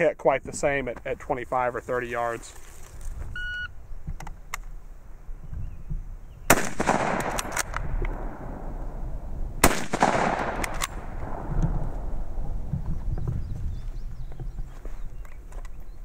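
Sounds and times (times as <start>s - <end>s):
rifle shots ringing: 6.5s - 9.0s, 9.6s - 12.1s
rifle bolt clicks: 7.2s - 8.2s, 10.0s - 11.0s.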